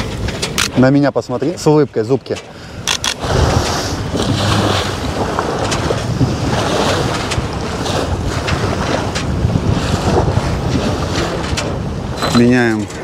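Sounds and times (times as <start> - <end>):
waves washing along hull: 0.0 - 13.0
wind buffeting microphone: 2.7 - 13.0.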